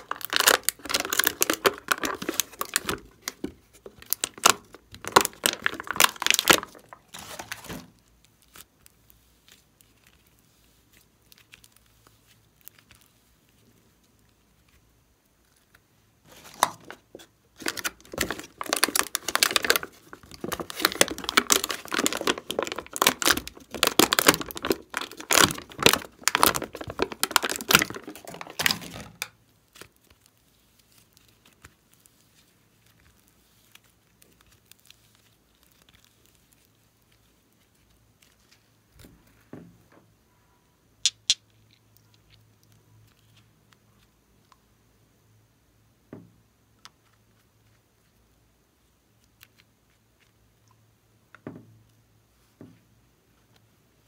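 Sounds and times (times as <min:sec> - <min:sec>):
hands kneading slime: 0:00.0 - 0:39.9.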